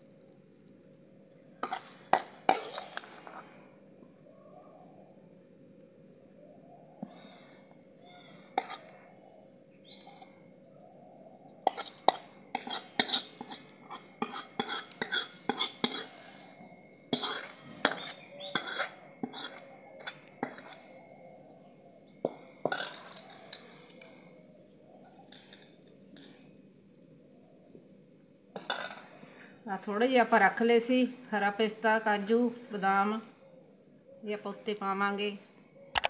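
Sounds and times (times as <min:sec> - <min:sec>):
spoon scraping and clinking on pan: 0:01.6 - 0:03.4, 0:08.6 - 0:08.9, 0:11.6 - 0:16.3, 0:17.1 - 0:20.8, 0:28.6 - 0:29.1.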